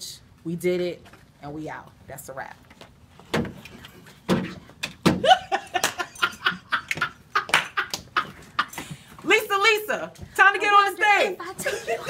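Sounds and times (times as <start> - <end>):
people laughing: 5.2 - 8.8, 11.6 - 12.0.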